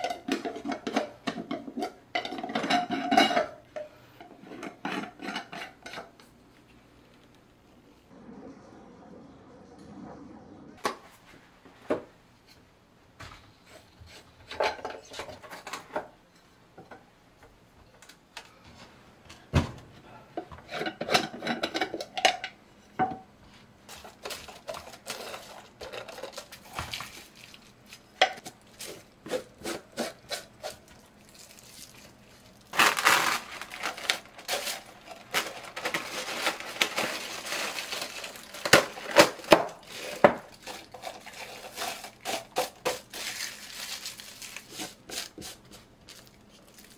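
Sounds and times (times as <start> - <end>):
plastic wrap crinkling: 24.0 - 29.1, 31.1 - 46.9.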